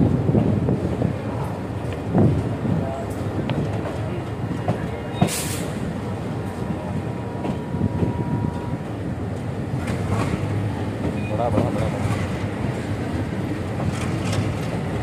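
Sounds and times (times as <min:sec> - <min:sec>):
diesel locomotive rumbling: 0:00.0 - 0:15.0
short hiss: 0:05.2 - 0:05.8.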